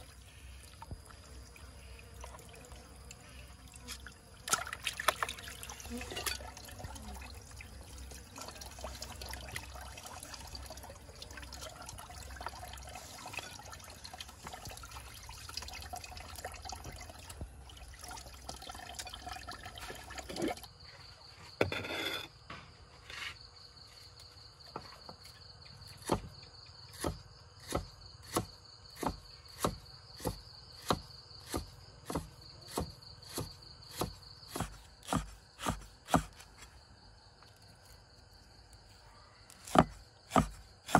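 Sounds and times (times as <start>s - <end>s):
high insect trill: 0.0s - 14.1s, 17.8s - 40.8s
cleaver chopping on wooden block: 27.0s - 36.4s, 39.6s - 40.9s.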